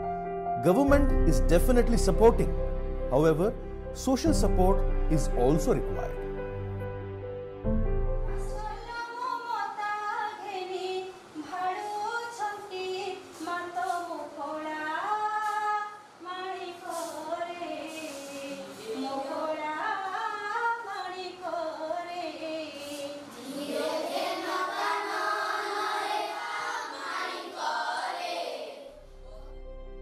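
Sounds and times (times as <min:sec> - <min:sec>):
woman and children singing: 0:08.6 - 0:28.8.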